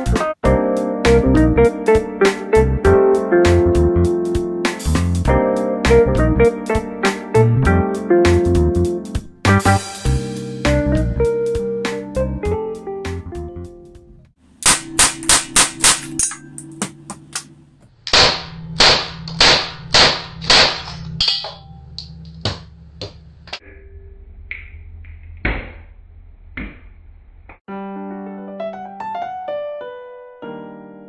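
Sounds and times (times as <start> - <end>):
background music: 0.0 - 17.8
cap pistol shots: 14.6 - 16.4, 18.1 - 21.1.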